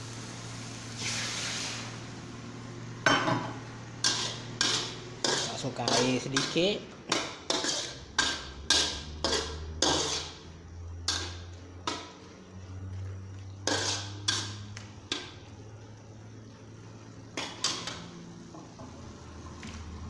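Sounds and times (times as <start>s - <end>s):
metal spatula scraping a wok: 4.0s - 12.2s, 13.5s - 14.8s.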